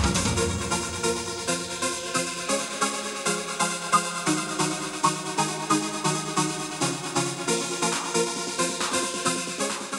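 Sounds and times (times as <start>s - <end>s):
synth notes over a beat: 0.0s - 2.2s.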